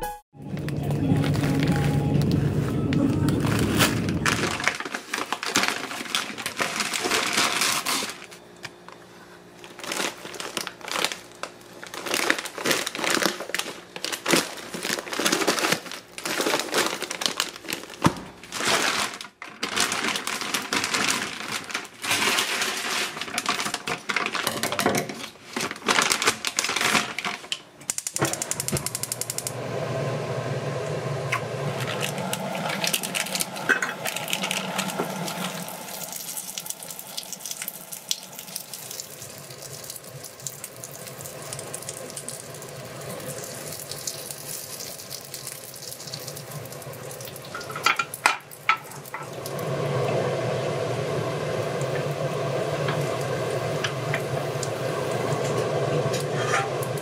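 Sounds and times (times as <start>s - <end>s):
steady humming: 0.4s - 18.6s, 27.4s - 43.5s, 48.7s - 57.0s
plastic bags crinkling: 0.6s - 8.5s, 9.6s - 27.6s, 31.7s - 49.3s.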